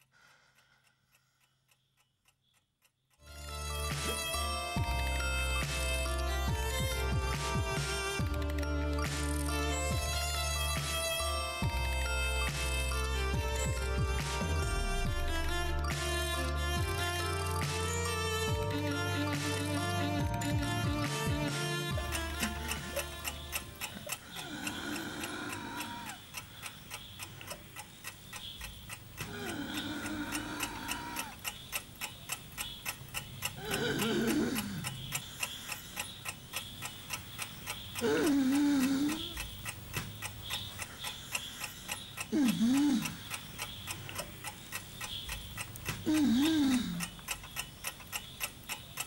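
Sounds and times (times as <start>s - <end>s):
alarm clock ticking: 0.0s - 49.0s.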